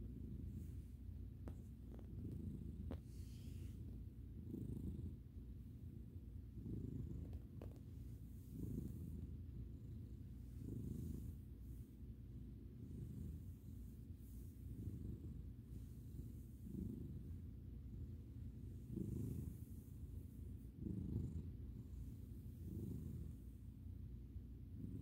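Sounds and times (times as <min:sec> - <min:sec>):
cat purring: 0:00.0 - 0:25.0.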